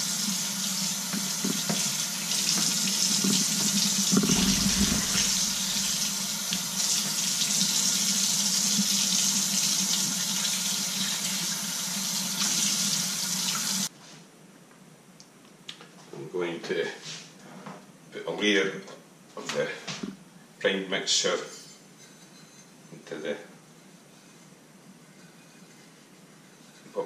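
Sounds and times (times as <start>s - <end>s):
tap running into metal sink: 2.5s - 6.6s
water splashing: 4.1s - 6.8s.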